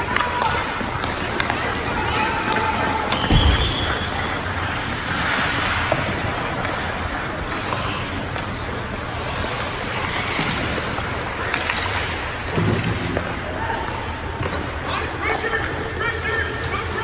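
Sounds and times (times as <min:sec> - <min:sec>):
ice rink rushing ambience: 0:00.0 - 0:17.0.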